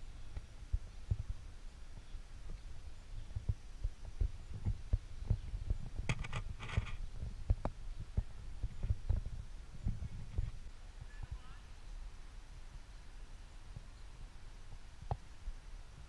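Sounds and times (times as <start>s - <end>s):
wind buffeting microphone: 0.0s - 11.6s.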